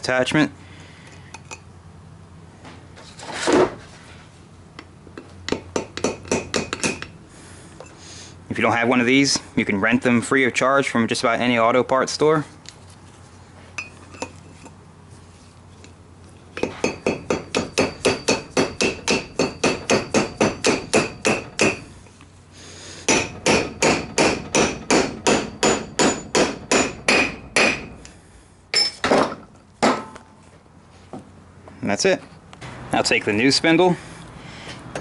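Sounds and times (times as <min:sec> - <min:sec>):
hammer striking metal: 0:05.5 - 0:07.1, 0:16.6 - 0:21.9, 0:23.1 - 0:28.0, 0:28.7 - 0:30.2.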